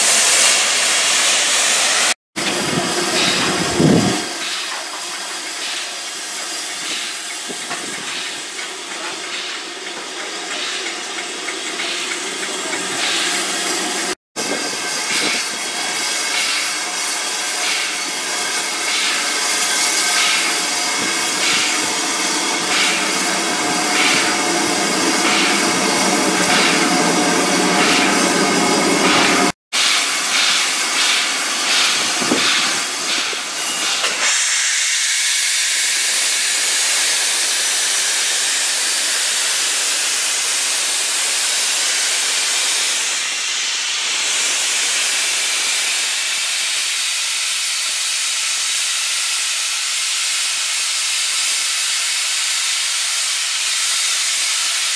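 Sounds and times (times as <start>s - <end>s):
steam locomotive hissing: 0.0s - 54.9s.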